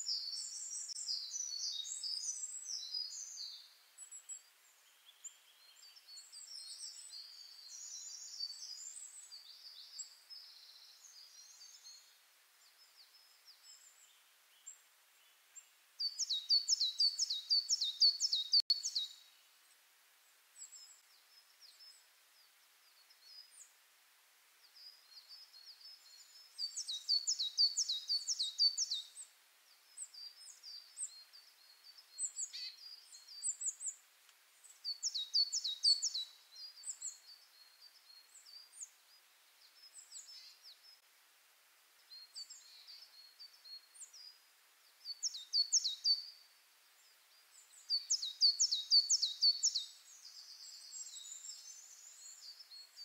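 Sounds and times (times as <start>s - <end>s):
small songbirds singing: 0.0s - 53.0s
soft bird chirps: 0.0s - 53.0s.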